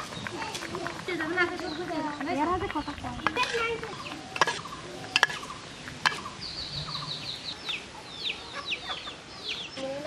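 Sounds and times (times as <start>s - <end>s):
ladle clinking on metal pot: 4.3s - 6.2s.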